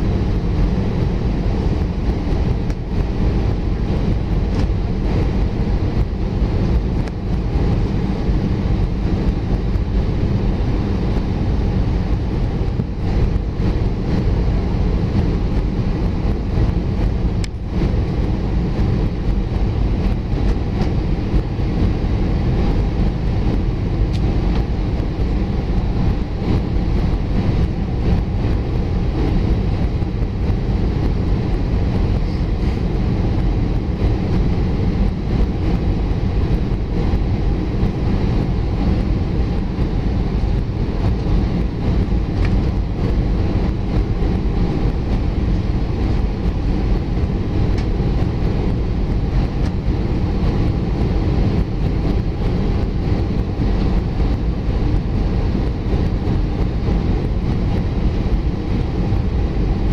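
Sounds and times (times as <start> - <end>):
jet engine and airflow rumble: 0.0 - 59.9.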